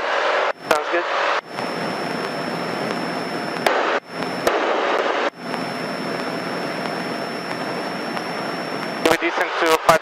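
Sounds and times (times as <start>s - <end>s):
high electronic whine: 0.0s - 10.0s
propeller airplane engine drone: 0.0s - 10.0s.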